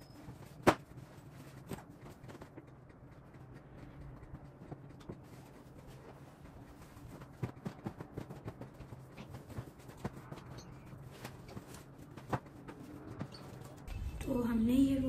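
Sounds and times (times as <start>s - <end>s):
low steady hum: 0.0s - 15.0s
bedding rustling: 5.0s - 14.4s.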